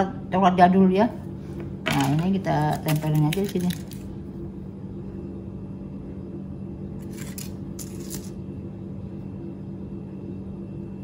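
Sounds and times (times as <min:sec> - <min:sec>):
steady low hum: 0:00.0 - 0:11.0
foil wrapper crinkling: 0:01.9 - 0:04.1.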